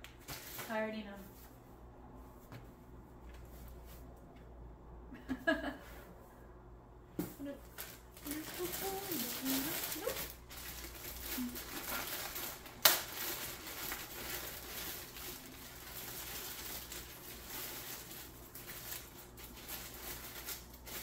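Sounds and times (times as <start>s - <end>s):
packaging crinkling and rustling: 7.4s - 21.0s.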